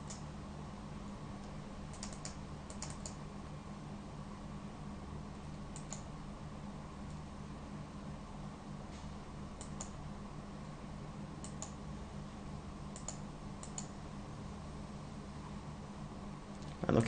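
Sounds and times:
computer mouse clicking: 0:00.0 - 0:00.2, 0:01.9 - 0:03.2, 0:05.7 - 0:06.1, 0:09.6 - 0:10.0, 0:11.4 - 0:11.8, 0:12.9 - 0:14.0
steady low hum: 0:00.0 - 0:17.0.

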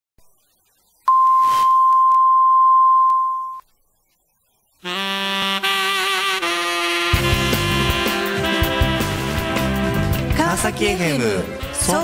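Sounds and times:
pure test tone: 0:01.1 - 0:03.6
instrumental music: 0:04.8 - 0:12.0.

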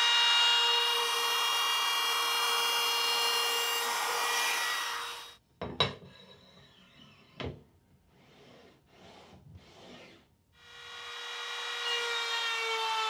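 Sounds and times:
router high whine: 0:00.0 - 0:05.4, 0:10.6 - 0:13.0.

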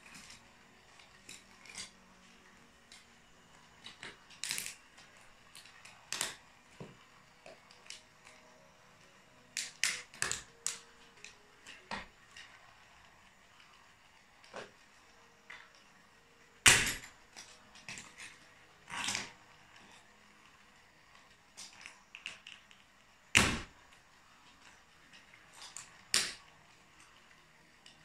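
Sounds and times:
plastic toy cracking under boots: 0:03.8 - 0:04.8, 0:16.7 - 0:19.3, 0:25.7 - 0:26.4.

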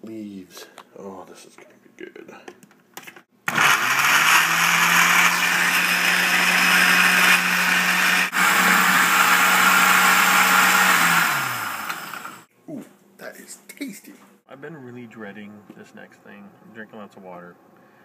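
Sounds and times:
blender crushing ice: 0:03.5 - 0:12.4.

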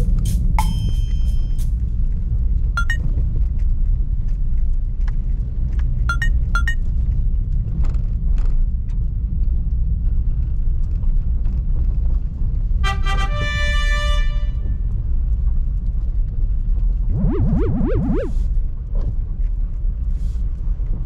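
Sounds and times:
short electronic blips: 0:02.8 - 0:03.0, 0:06.1 - 0:06.8, 0:17.1 - 0:18.5.

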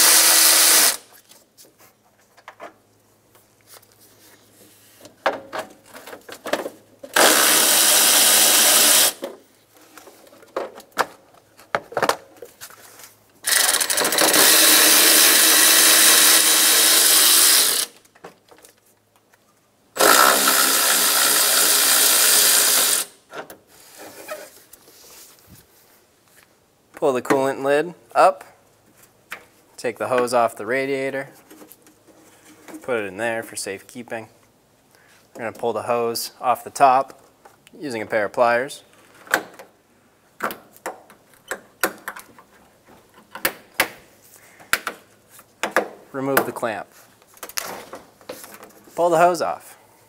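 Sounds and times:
power ratchet spinning bolts: 0:00.0 - 0:01.0, 0:07.1 - 0:09.2, 0:13.4 - 0:18.0, 0:20.0 - 0:23.1.

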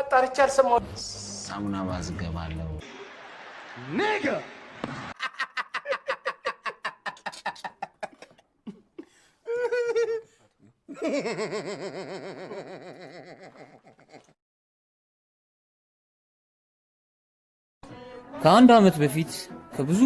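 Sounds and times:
man laughing hard: 0:05.2 - 0:10.3, 0:10.9 - 0:14.4.

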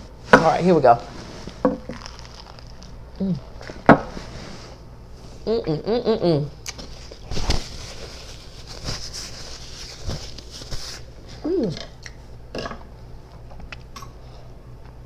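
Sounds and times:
paper napkin rustling: 0:00.6 - 0:03.0, 0:06.8 - 0:11.4
person humming mmm: 0:03.2 - 0:03.6, 0:05.4 - 0:06.8, 0:11.4 - 0:12.0.

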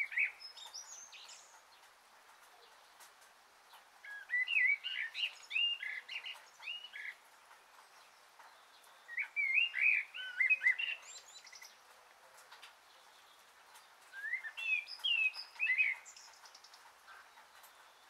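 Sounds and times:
songbird chirping and whistling: 0:00.0 - 0:01.6, 0:04.0 - 0:07.2, 0:07.8 - 0:11.8, 0:13.9 - 0:18.0.

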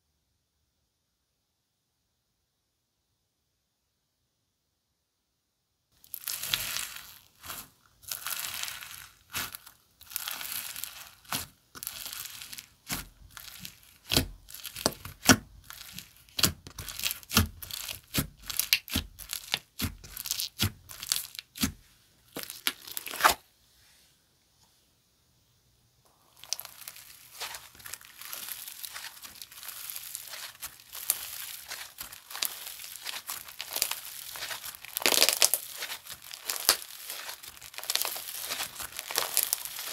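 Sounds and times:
slime crackling and popping: 0:06.0 - 0:23.4, 0:26.1 - 0:39.9.

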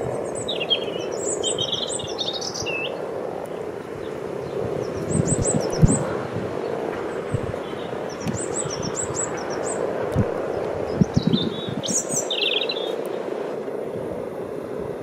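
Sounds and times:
frogs croaking: 0:00.0 - 0:13.3
wind thudding on microphone: 0:00.0 - 0:15.0
bird chirping and trilling: 0:00.2 - 0:03.0, 0:04.0 - 0:09.8, 0:10.9 - 0:13.0.

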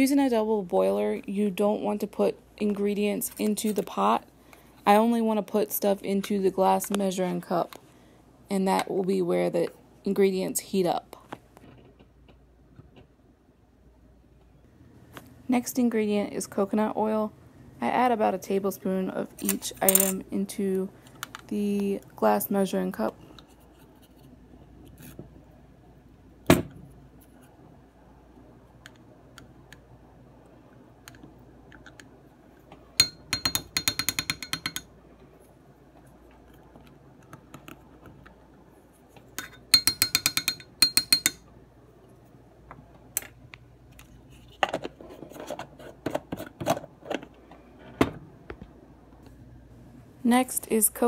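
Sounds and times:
plastic spoon tapping glass cup: 0:33.0 - 0:34.9, 0:39.7 - 0:41.4.

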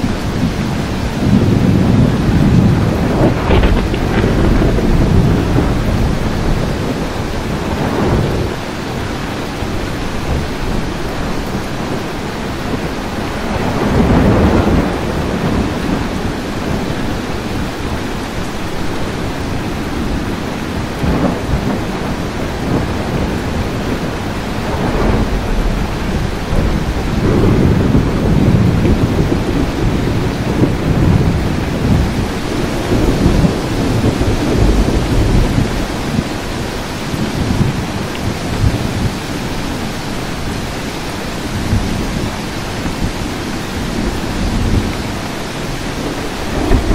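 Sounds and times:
steady rain: 0:00.0 - 0:46.9
thunder rumbling: 0:00.0 - 0:46.9.

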